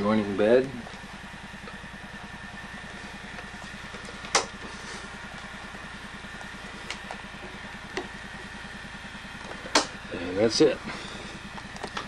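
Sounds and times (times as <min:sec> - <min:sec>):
pulsing mechanical hum: 0:00.0 - 0:12.0
thin steady whine: 0:00.0 - 0:12.0
sharp click: 0:04.3 - 0:04.6, 0:09.7 - 0:10.0.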